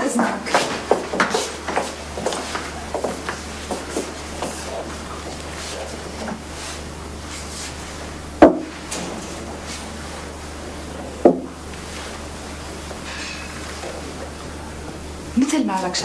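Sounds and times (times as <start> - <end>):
faint shuffling: 0.0 - 14.4
low steady hum: 0.0 - 16.0
sharp wooden knocks: 8.4 - 8.7, 11.2 - 11.5.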